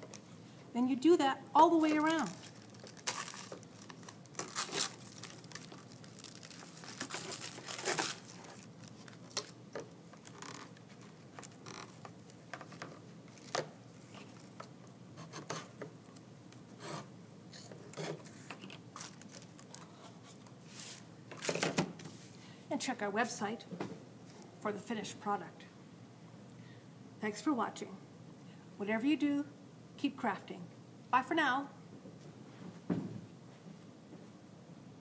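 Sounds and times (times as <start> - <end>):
tissue paper ripping and crinkling: 1.8 - 9.6, 19.0 - 19.8.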